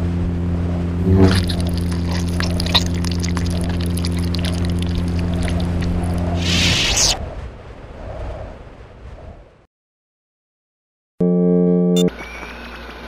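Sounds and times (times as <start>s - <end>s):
low electric hum: 0.0s - 7.0s
electric crackling and fizzing: 1.0s - 7.2s.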